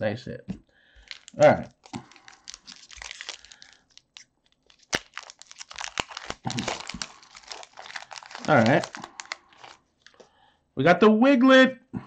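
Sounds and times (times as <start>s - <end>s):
foil wrapper crinkling and tearing: 1.0s - 10.3s
sharp crack: 4.8s - 7.8s.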